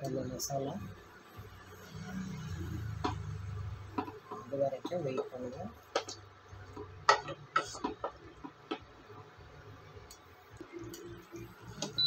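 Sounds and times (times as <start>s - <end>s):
wooden spatula scraping a pot: 2.6s - 8.8s.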